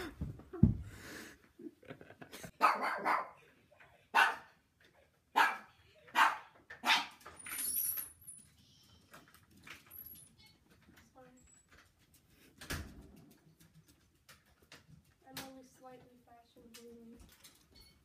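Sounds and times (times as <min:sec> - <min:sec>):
dog barking: 0:02.6 - 0:03.4, 0:04.1 - 0:04.6, 0:05.3 - 0:07.2.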